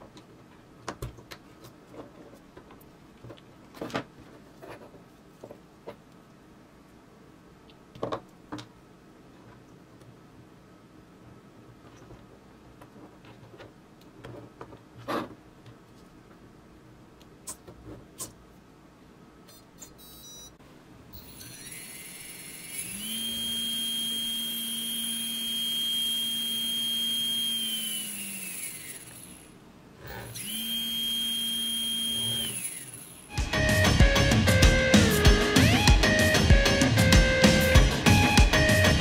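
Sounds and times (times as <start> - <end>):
small electric motor whining: 21.2 - 33.6.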